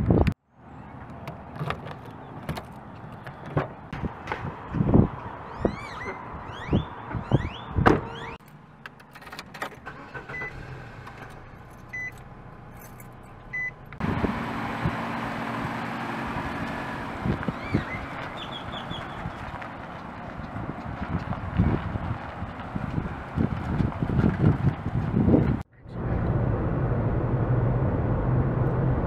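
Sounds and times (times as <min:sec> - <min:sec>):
birds chirping: 0:00.6 - 0:03.9, 0:17.4 - 0:20.6
short beeps: 0:11.9 - 0:12.2.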